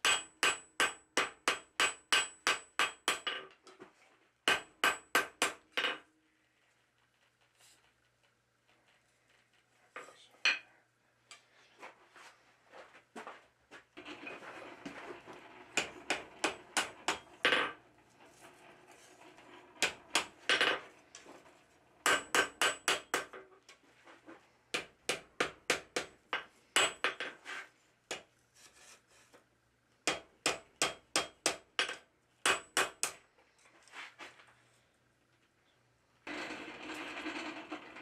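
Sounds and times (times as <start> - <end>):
hammer striking metal on anvil: 0.0 - 3.3, 22.1 - 23.3.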